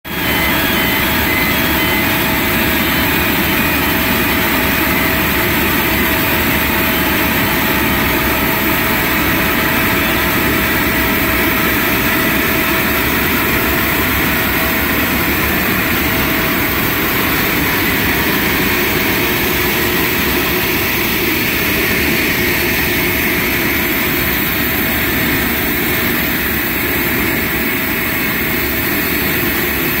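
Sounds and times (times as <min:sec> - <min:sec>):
jet aircraft running: 0:00.1 - 0:30.0.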